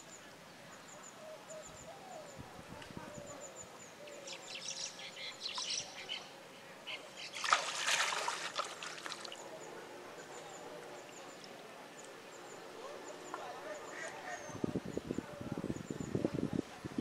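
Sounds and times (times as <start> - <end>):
pond water splashing: 7.2 - 9.6.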